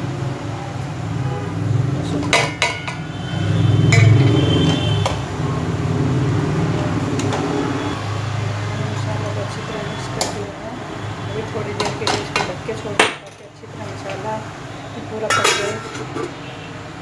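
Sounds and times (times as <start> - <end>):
steel utensils clinking and scraping: 3.8 - 4.8, 15.2 - 16.4.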